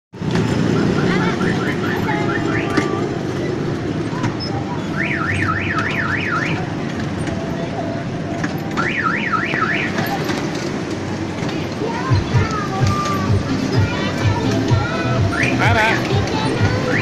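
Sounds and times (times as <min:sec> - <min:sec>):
kiddie train ride rumble: 0:00.2 - 0:17.0.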